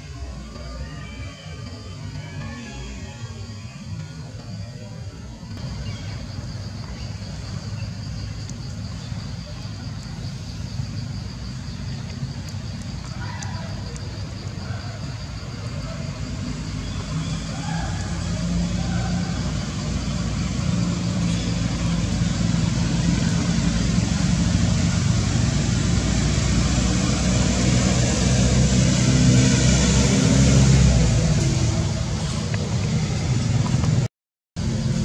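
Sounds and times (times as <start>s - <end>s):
vehicle engine running: 5.5s - 35.0s.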